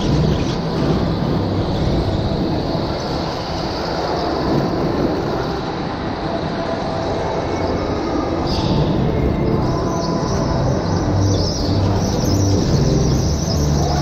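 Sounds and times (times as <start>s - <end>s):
go-kart motor rumbling: 0.0s - 5.7s.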